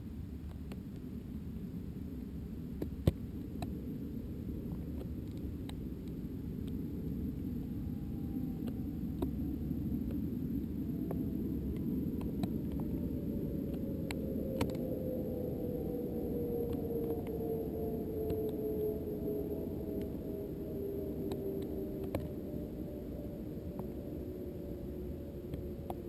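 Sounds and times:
muffled air rumble on microphone: 0.0 - 26.0
faint clicks: 8.6 - 9.4, 11.0 - 13.0, 13.6 - 14.8, 16.6 - 17.4, 21.3 - 22.4
faint tone falling in pitch: 14.0 - 26.0.

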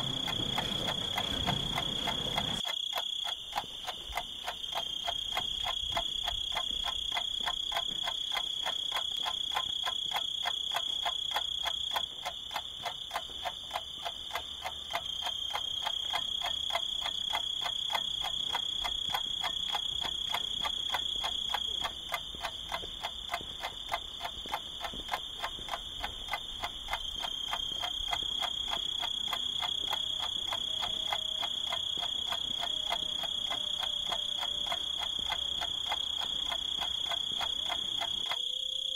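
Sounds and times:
rapid ticking pulse: 0.0 - 38.9
high whistling tone: 38.3 - 38.9.

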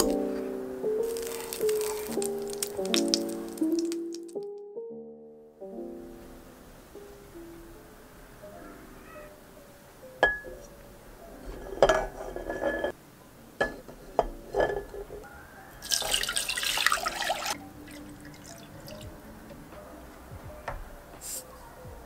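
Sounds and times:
water pouring into pot: 1.0 - 4.4, 15.8 - 19.2
eggs knocking in metal pot: 1.2 - 4.3, 13.6 - 15.2.

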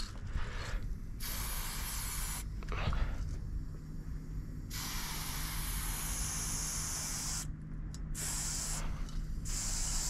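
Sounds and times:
spray paint can hissing: 1.2 - 2.5, 4.7 - 7.5, 8.2 - 10.0.

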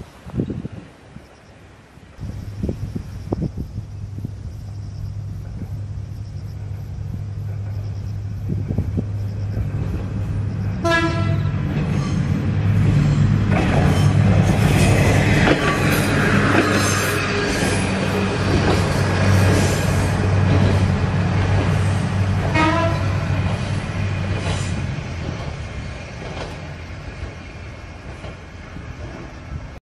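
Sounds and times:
diesel railcar engine rumble: 0.0 - 29.8
train horn blast: 10.8 - 12.3, 15.5 - 20.4, 22.4 - 23.6.

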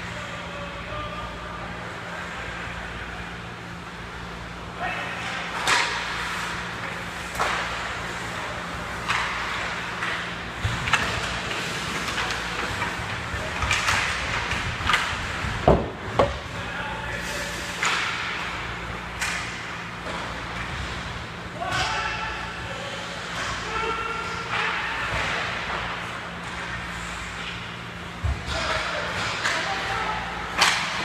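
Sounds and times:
low arena hum: 0.0 - 31.0
stick and puck clatter: 5.6 - 6.2, 9.0 - 16.6, 28.5 - 29.9, 30.6 - 31.0
heavy thuds against boards: 15.6 - 16.4.

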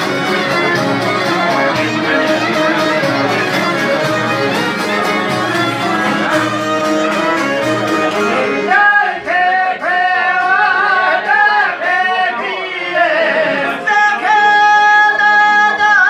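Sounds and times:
man singing: 0.0 - 7.2, 7.8 - 16.0
long-necked lutes: 0.0 - 9.2
accordion: 0.0 - 16.0
violin: 0.0 - 16.0.

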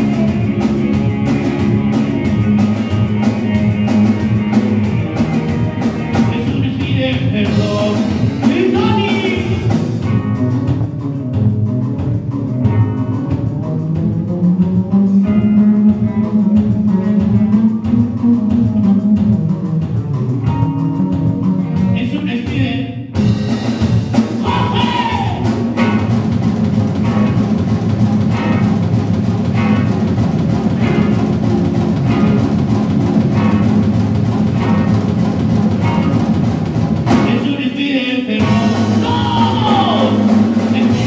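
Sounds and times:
bass guitar: 0.0 - 41.0
drum kit: 0.0 - 41.0
electric guitars: 0.0 - 41.0
person singing: 24.4 - 25.5, 37.2 - 41.0.

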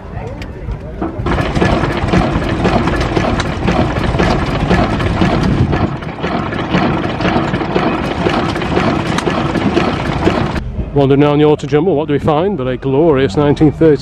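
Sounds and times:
engine clicks: 0.7 - 10.6
stationary engine beat: 1.0 - 10.6.

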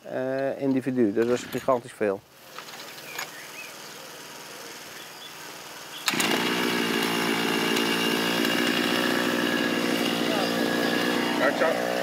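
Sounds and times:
two-stroke auger engine running: 6.0 - 12.0.

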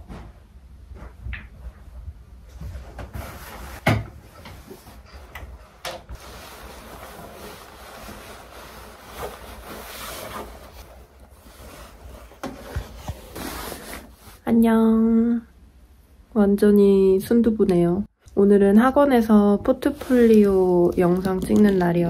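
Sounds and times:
padded coat rustling: 6.1 - 14.4.

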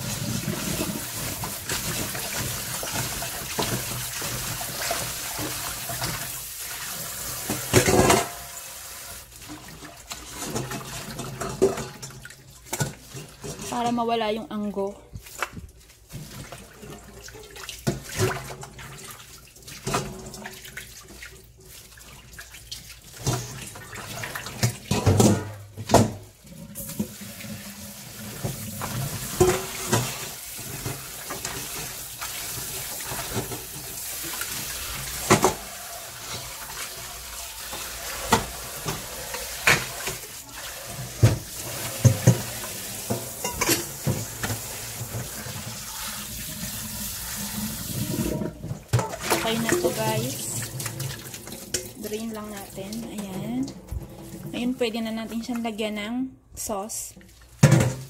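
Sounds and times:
metal colander and bowls clattering: 0.0 - 8.7, 9.4 - 55.8, 57.6 - 58.0.

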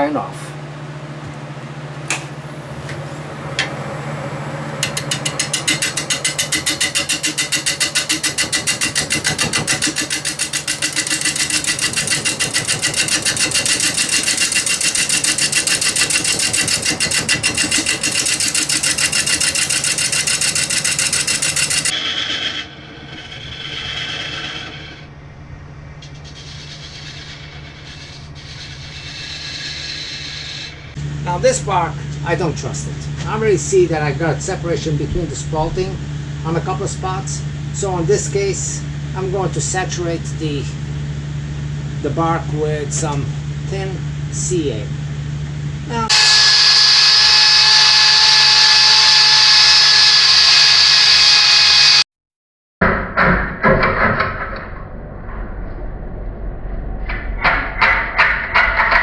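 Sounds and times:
gouge cutting spinning wood: 4.8 - 25.1, 26.1 - 31.0, 46.1 - 52.0
lathe motor hum: 4.8 - 25.1, 46.1 - 52.0.

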